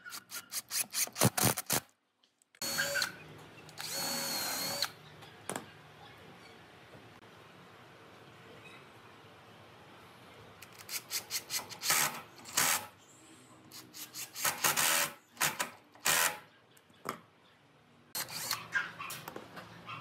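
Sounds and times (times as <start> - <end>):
cordless drill into wood: 3.8 - 4.9.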